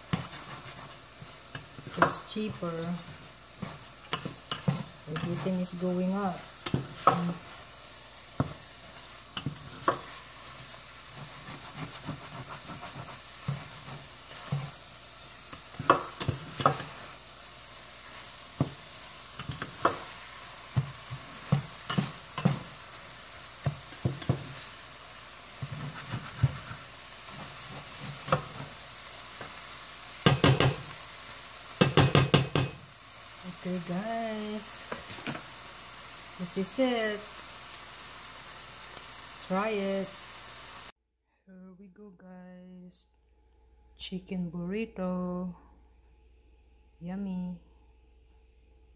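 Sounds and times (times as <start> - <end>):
spatula scraping frying pan: 0.0 - 17.2, 17.9 - 23.0, 25.5 - 29.6
faint sizzle: 0.0 - 41.0.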